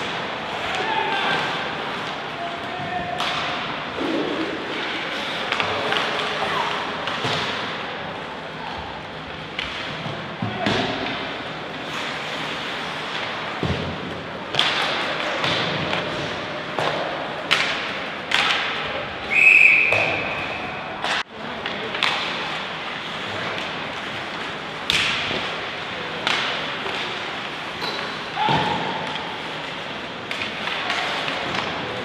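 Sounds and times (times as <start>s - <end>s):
whistle blown: 19.3s - 20.7s.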